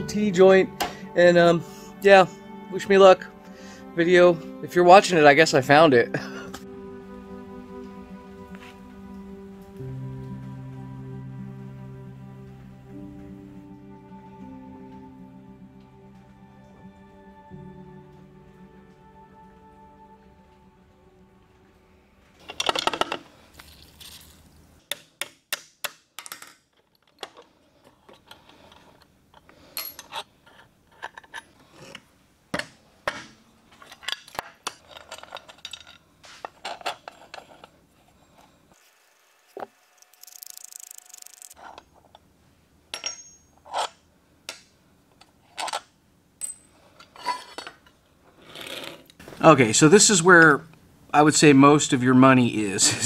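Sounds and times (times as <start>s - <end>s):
metal parts clinking and scraping: 22.4s - 24.6s, 26.2s - 32.1s, 33.1s - 37.8s, 40.1s - 42.2s, 42.9s - 44.0s, 45.2s - 49.2s.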